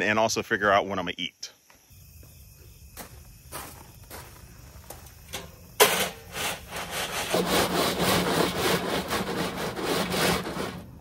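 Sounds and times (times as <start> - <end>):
hand saw cutting wood: 5.8 - 10.9.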